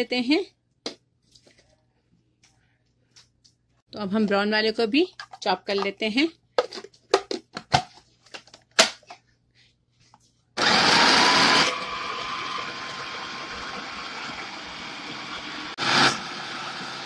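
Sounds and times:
food processor chopping bread: 10.6 - 17.0.

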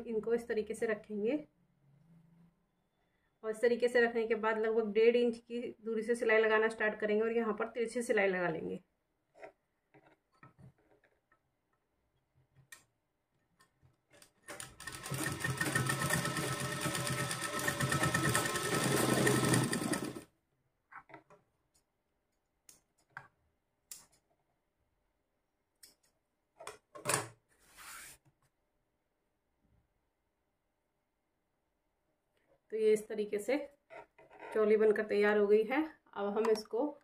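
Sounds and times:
sewing machine stitching: 14.1 - 20.3.

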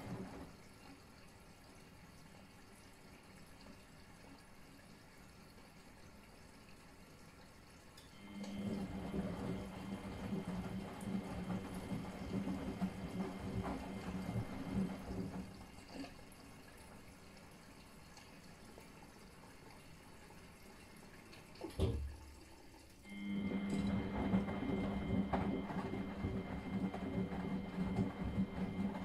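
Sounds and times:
washing machine motor hum: 0.0 - 3.2, 8.1 - 17.8, 20.0 - 29.0
water and laundry sloshing: 0.0 - 29.0.

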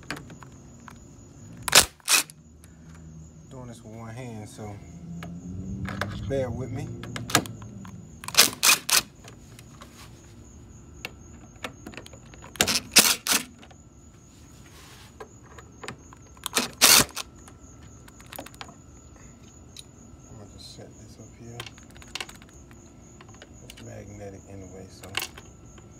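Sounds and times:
screwdriver clicking on plastic fasteners: 8.2 - 9.1, 11.3 - 13.7, 15.5 - 17.2.

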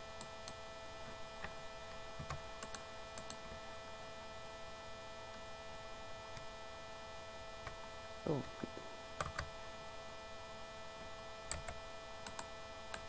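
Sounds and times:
electrical mains hum: 0.0 - 13.0
faint computer mouse clicks: 11.5 - 13.0.

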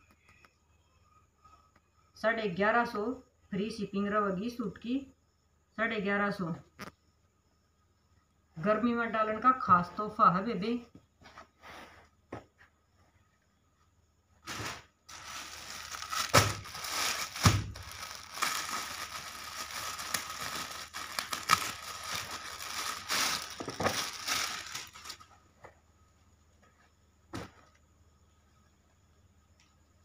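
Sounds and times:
plastic bag crinkling: 14.4 - 25.3.

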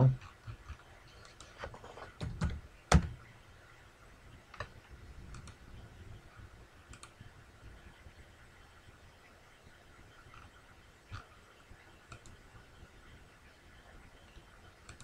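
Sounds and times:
keyboard keys typing: 5.3 - 5.6.

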